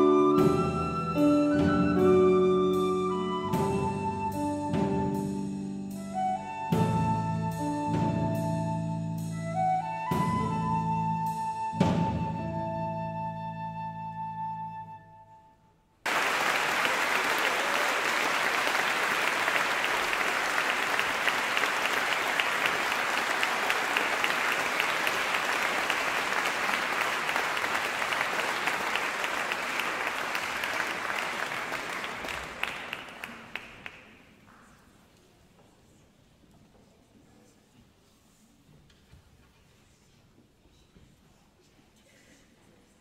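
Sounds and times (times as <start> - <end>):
audience applauding: 16.0 - 34.8.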